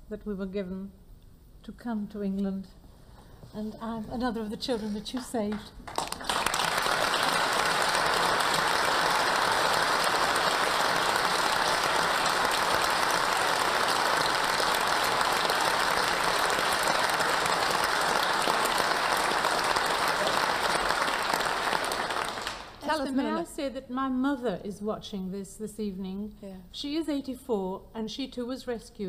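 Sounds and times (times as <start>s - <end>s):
audience applauding: 5.5s - 23.4s.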